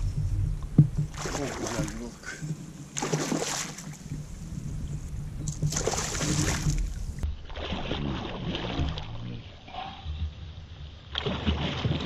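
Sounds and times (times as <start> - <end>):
fish splashing in water: 1.1 - 2.1, 3.0 - 4.3, 5.5 - 9.2, 11.1 - 12.0.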